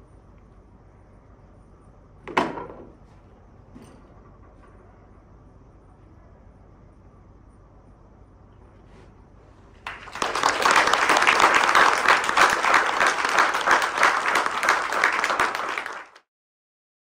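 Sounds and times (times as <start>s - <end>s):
audience applauding: 9.8s - 16.3s.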